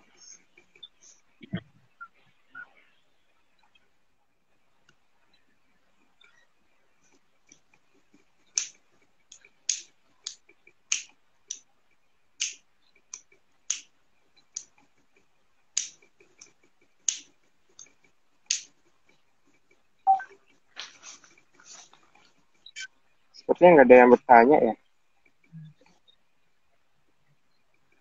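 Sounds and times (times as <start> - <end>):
sharp clicks: 8.5 - 11.7, 12.4 - 13.9.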